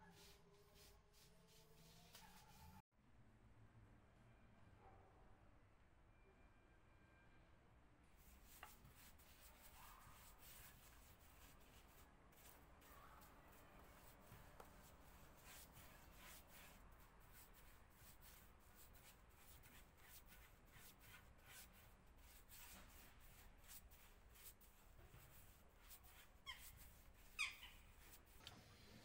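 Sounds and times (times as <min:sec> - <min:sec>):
paintbrush swishing on wood: 0:00.0 - 0:02.8, 0:08.2 - 0:28.4.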